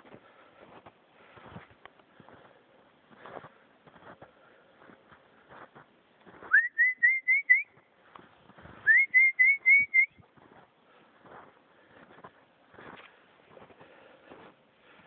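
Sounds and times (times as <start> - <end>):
footsteps crunching in snow: 0.0 - 6.7, 7.7 - 15.0
person whistling rising notes: 6.5 - 7.8, 8.8 - 10.2.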